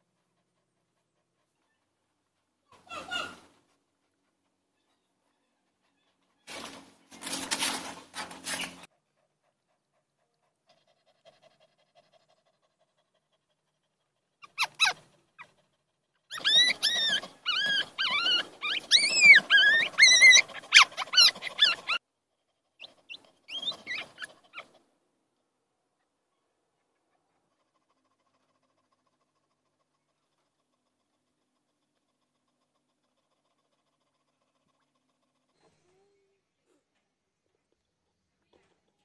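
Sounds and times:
puppies whimpering and squealing: 0:14.4 - 0:15.0, 0:16.3 - 0:22.0, 0:22.8 - 0:24.8.

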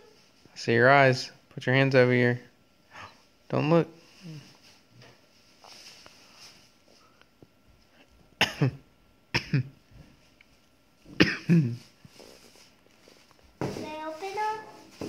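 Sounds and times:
person coughing: 0:08.4 - 0:09.8, 0:11.2 - 0:11.9.

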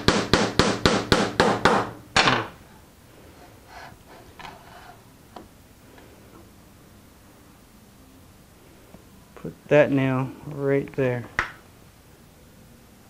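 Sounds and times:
hammer driving nail into wood: 0:00.0 - 0:02.5.

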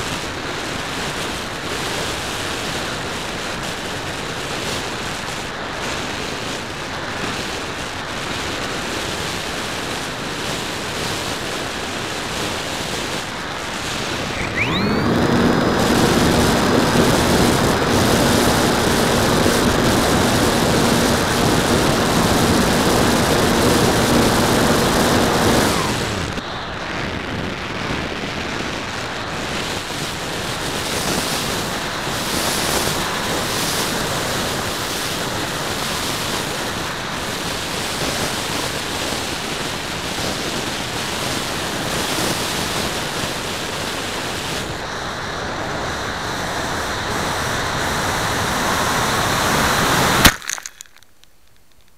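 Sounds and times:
electric motor whine: 0:13.8 - 0:26.4
motor winding down: 0:14.0 - 0:26.4.

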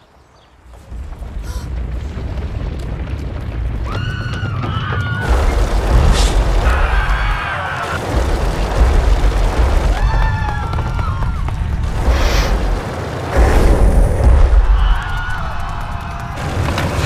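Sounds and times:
herd of rhinos stampeding: 0:00.4 - 0:17.0
people screaming: 0:03.7 - 0:12.0, 0:14.2 - 0:17.0.

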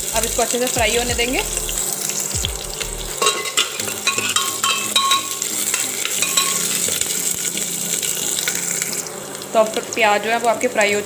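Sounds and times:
onions sizzling in hot oil: 0:00.0 - 0:11.0
metal spoon clinking on pot: 0:03.2 - 0:06.8.

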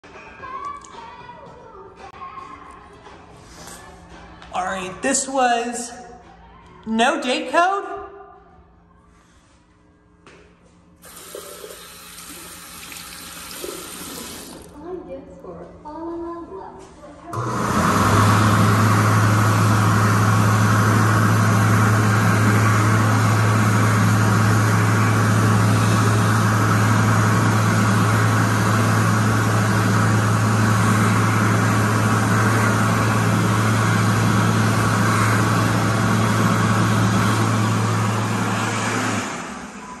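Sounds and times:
hand dryer blowing: 0:11.0 - 0:14.8, 0:17.4 - 0:40.0
fan winding down: 0:11.0 - 0:15.0, 0:17.3 - 0:40.0.

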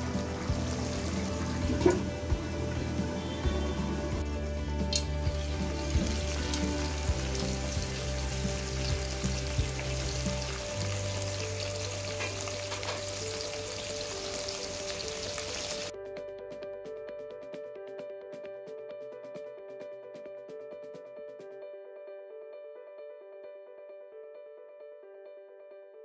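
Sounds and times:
food sizzling in hot oil: 0:00.0 - 0:15.9
background music: 0:00.0 - 0:26.0.

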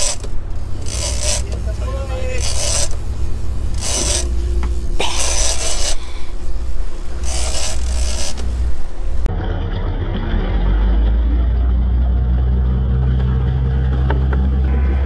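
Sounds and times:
fishing reel cranking: 0:00.0 - 0:09.3
boat engine droning: 0:00.0 - 0:15.0.

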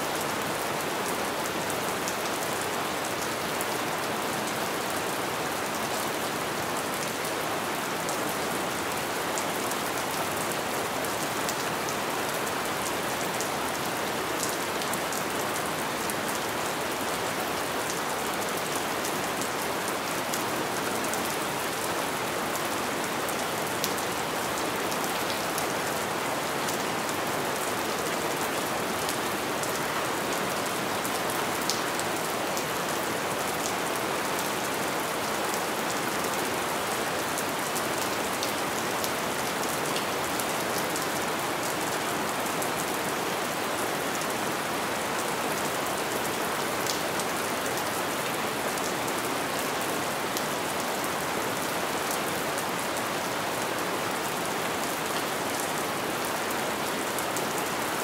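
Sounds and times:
light rain pattering: 0:00.0 - 0:58.0.

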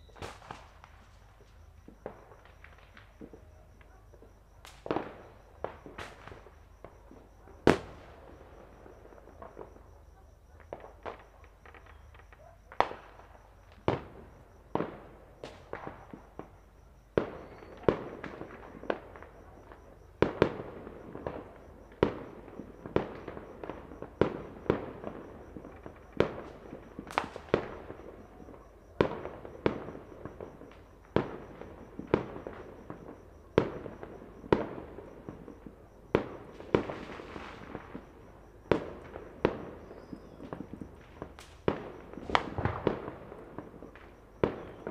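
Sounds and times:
distant firecracker crackle: 0:00.0 - 0:44.9
firework bangs: 0:00.1 - 0:01.1, 0:36.1 - 0:44.9.

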